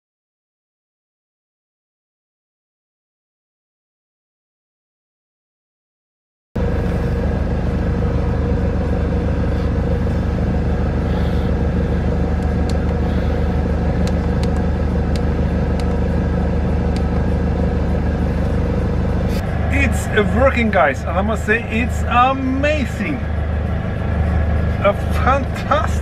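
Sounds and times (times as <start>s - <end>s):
van engine running: 6.6s - 26.0s.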